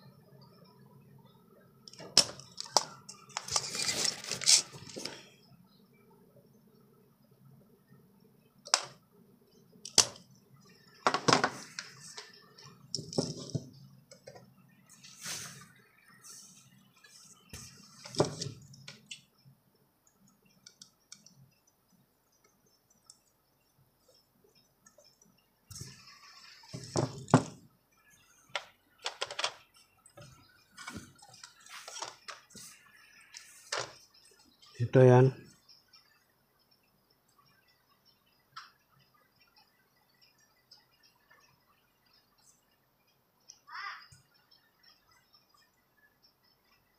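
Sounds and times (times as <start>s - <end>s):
clicks taps and scrapes of handling: 1.9s - 5.3s.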